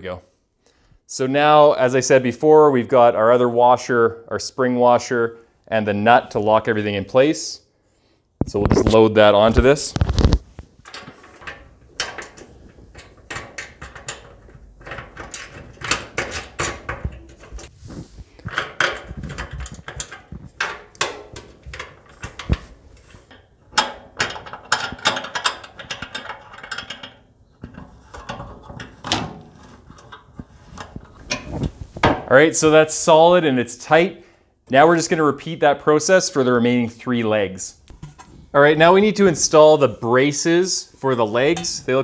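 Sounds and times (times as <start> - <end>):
metallic clicks and rattles of tools: 10.0 - 17.7, 18.4 - 29.2.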